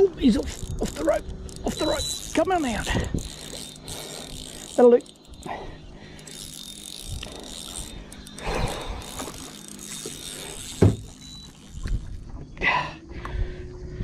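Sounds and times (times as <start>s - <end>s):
fishing reel winding: 0.0s - 12.2s
short thump: 10.8s - 11.1s.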